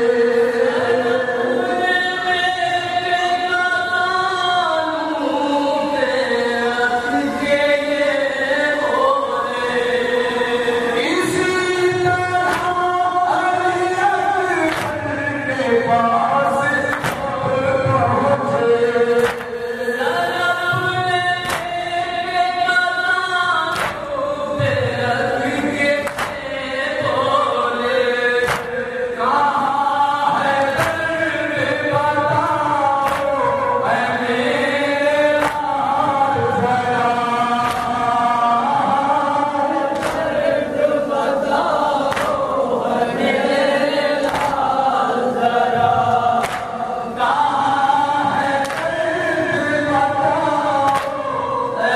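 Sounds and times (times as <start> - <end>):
group chanting: 0.0 - 51.9
man singing into a microphone: 0.0 - 51.9
chest-beating slaps: 12.4 - 12.8, 14.7 - 15.0, 16.9 - 17.4, 19.2 - 19.6, 21.4 - 21.8, 23.7 - 24.1, 26.0 - 26.5, 28.4 - 28.8, 30.6 - 31.0, 33.0 - 33.4, 35.4 - 35.7, 37.6 - 38.0, 39.9 - 40.5, 42.0 - 42.5, 44.2 - 44.7, 46.4 - 46.8, 48.5 - 49.0, 50.8 - 51.2.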